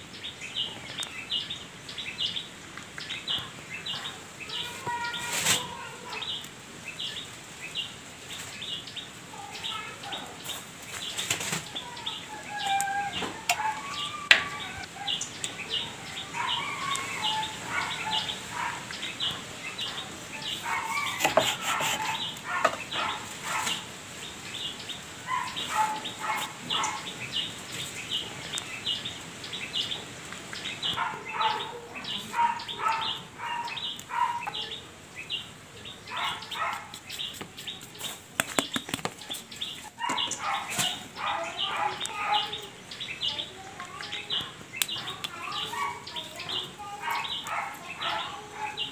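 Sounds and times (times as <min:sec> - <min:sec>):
birds chirping: 0:00.0 - 0:48.9.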